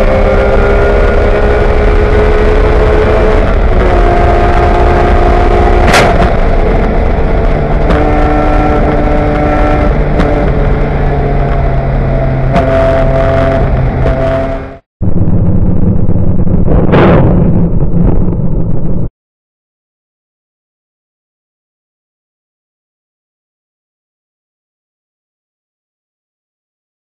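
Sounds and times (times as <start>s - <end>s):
race car engine running hard: 0.0s - 14.8s.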